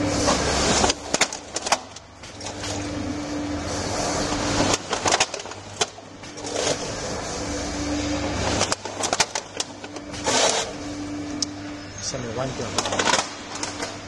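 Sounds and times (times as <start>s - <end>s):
machine humming: 0.0s - 14.0s
machine hissing: 2.9s - 5.2s.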